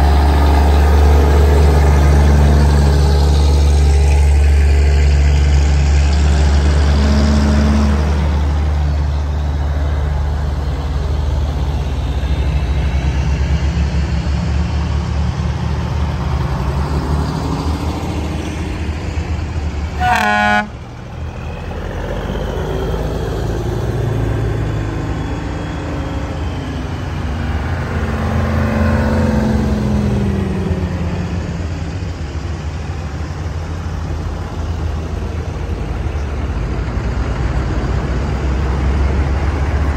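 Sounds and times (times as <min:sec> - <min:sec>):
heavy trucks driving past: 0:00.0 - 0:39.9
truck horn toot: 0:20.0 - 0:20.8.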